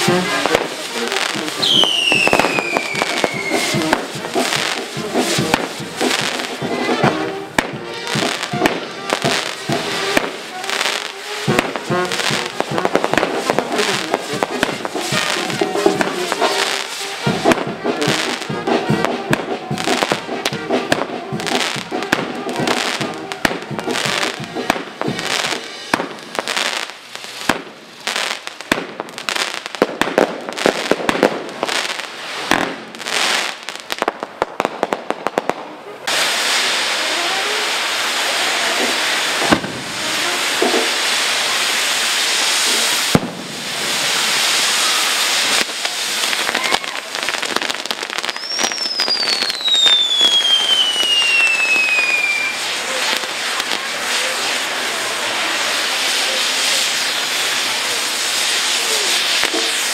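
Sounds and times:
firecracker bangs: 0:00.0 - 0:59.9
steady rushing noise: 0:02.5 - 0:28.6, 0:36.0 - 0:48.0.

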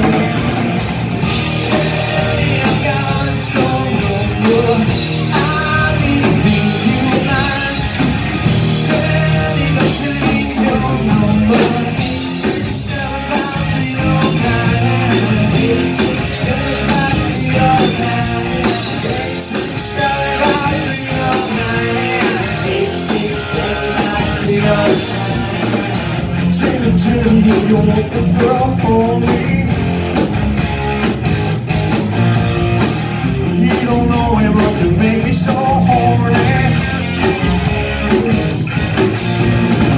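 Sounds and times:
bass guitar: 0:00.0 - 0:39.9
drum kit: 0:00.0 - 0:39.9
electric guitars: 0:00.0 - 0:39.9
person singing: 0:01.6 - 0:25.8, 0:26.5 - 0:29.8, 0:33.5 - 0:36.9.

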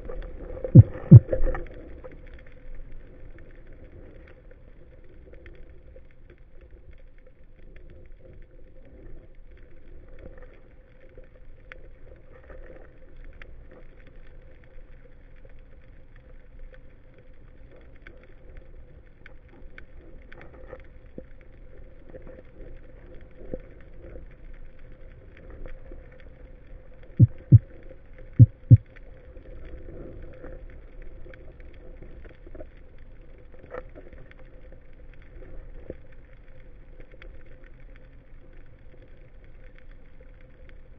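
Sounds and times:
underwater low rush: 0:00.0 - 0:04.3, 0:27.2 - 0:30.6
faint clicks: 0:00.0 - 0:40.9
faint steady hum: 0:00.0 - 0:40.9
dull low thumps: 0:00.8 - 0:01.4, 0:27.2 - 0:27.7, 0:28.4 - 0:28.8.

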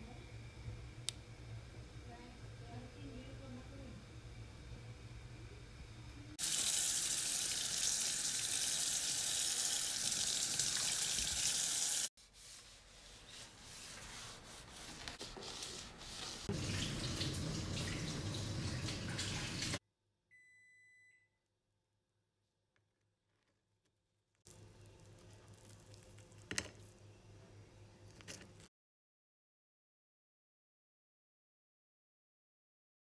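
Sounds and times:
tap water running into sink: 0:06.4 - 0:12.1, 0:16.5 - 0:19.8
sponge scrubbing sink: 0:10.5 - 0:19.8.

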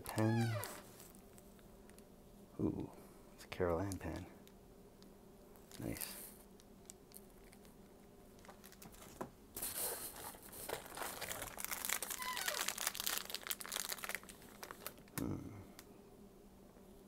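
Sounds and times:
plastic packaging crinkling: 0:00.0 - 0:02.0, 0:05.6 - 0:07.8, 0:08.4 - 0:15.2.

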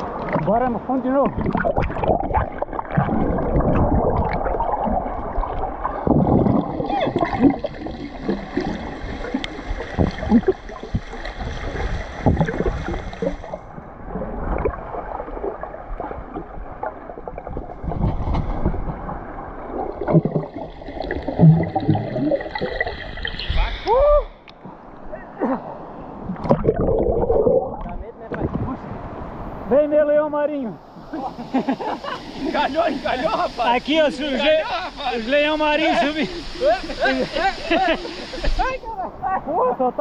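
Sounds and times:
muffled underwater churning: 0:00.0 - 0:23.8, 0:26.1 - 0:28.7
small underwater clicks and knocks: 0:09.3 - 0:13.6.

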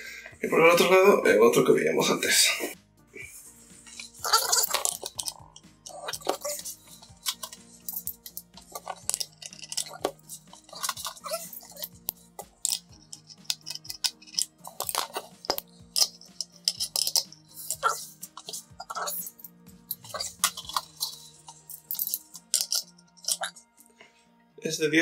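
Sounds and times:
metal scooter parts clinking: 0:03.9 - 0:23.6.

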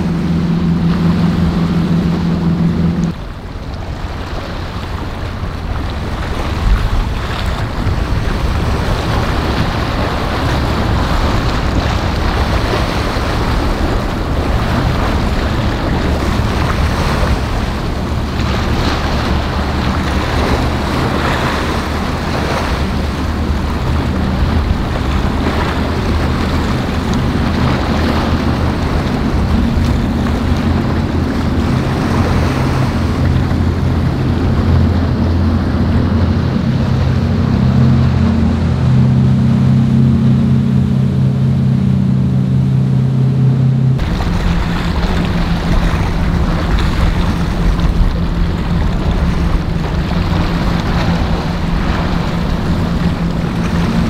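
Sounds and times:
boat engine hum: 0:00.0 - 0:54.0
ocean waves breaking: 0:00.0 - 0:54.0
wind buffeting microphone: 0:00.0 - 0:54.0.

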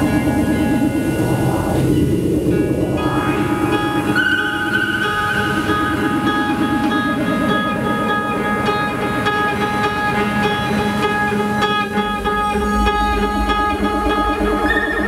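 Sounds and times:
deep low rumble: 0:00.0 - 0:08.2, 0:11.3 - 0:15.0
ambient drone tones: 0:00.0 - 0:15.0
repeating guitar notes: 0:00.0 - 0:15.0.

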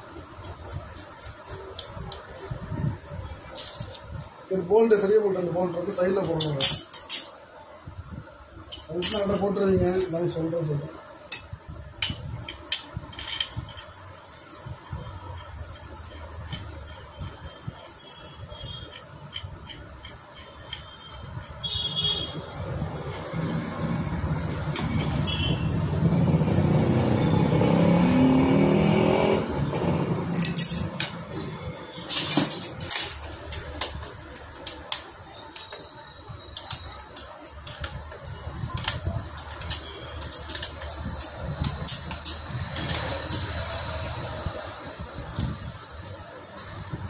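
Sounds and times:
hand tools clicking on metal: 0:36.5 - 0:44.0.

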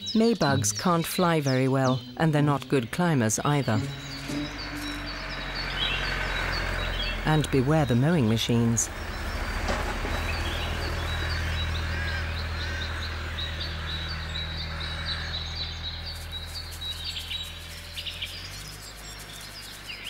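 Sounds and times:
songbirds chirping: 0:00.0 - 0:20.0
tractor engine drone: 0:00.0 - 0:20.0.

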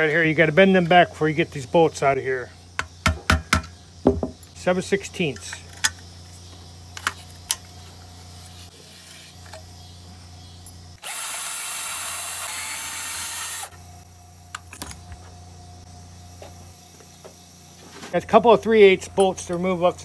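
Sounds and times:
cordless drill running: 0:11.0 - 0:13.8.

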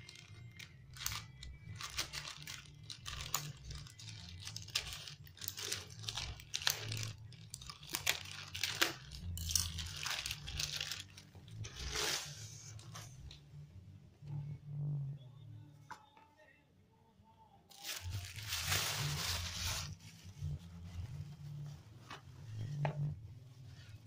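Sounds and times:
scissors cutting plastic bag: 0:00.0 - 0:12.9, 0:17.7 - 0:20.0
plastic crinkling and tearing: 0:00.0 - 0:13.3, 0:17.7 - 0:20.5.

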